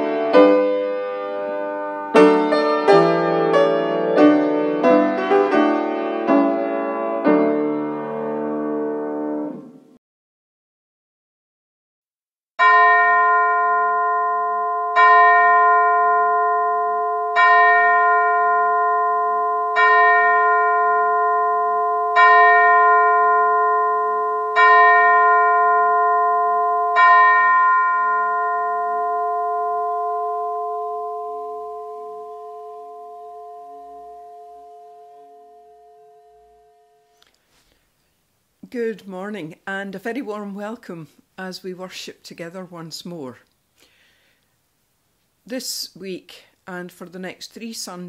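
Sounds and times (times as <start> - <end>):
bell struck: 12.6 - 37.1.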